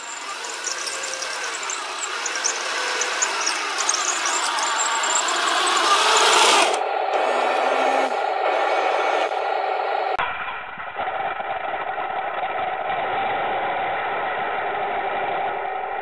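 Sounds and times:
electric motors whining: 0.0s - 10.2s.

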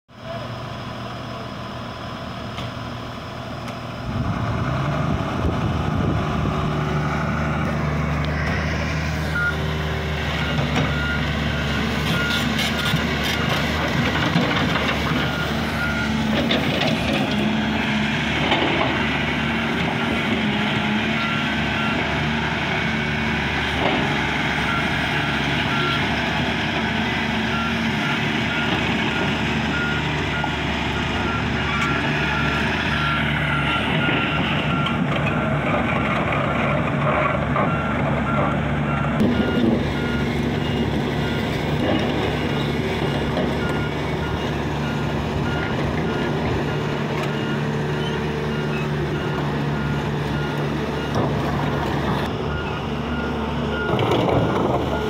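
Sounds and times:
excavator diesel engine running: 0.1s - 55.0s
travel alarm beeps: 9.3s - 9.6s.

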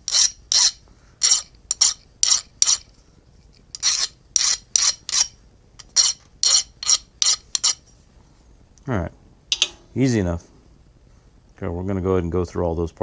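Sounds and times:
file scraping steel: 0.0s - 2.9s, 3.7s - 7.8s.

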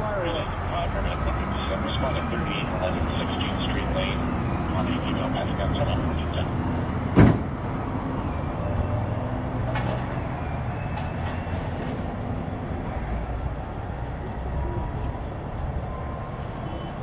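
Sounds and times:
fire engine idling: 0.0s - 7.2s
loud thump: 7.1s - 7.6s.

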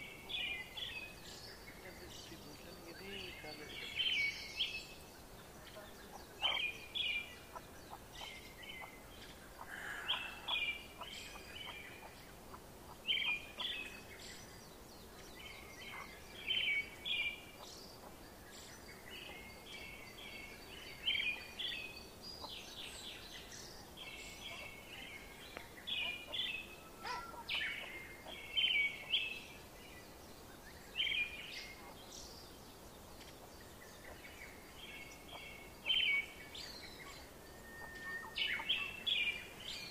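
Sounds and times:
chicks peeping: 5.8s - 13.8s.

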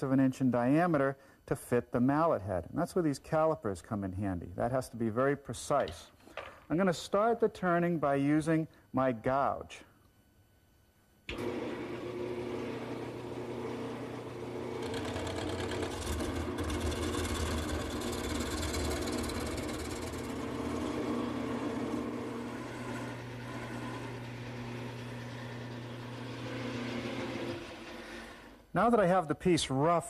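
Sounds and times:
gouge cutting spinning wood: 11.3s - 28.6s
lathe motor hum: 11.3s - 28.7s.

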